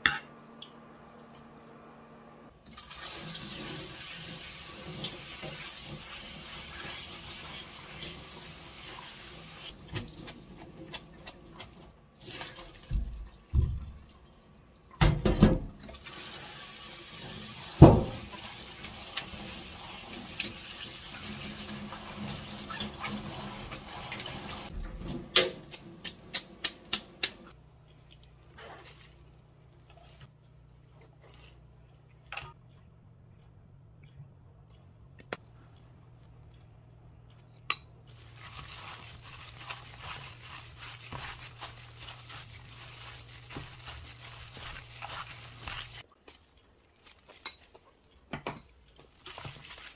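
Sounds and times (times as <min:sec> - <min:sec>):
sprouts being squeezed: 0:38.1 - 0:48.0.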